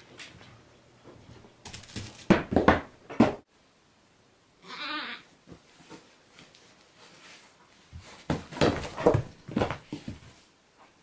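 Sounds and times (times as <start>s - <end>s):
baby goat bleating: 4.6s - 5.3s.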